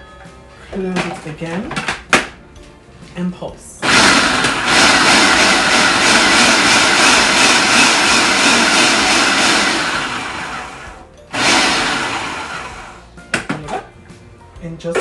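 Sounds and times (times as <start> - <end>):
food processor chopping: 3.8 - 13.0.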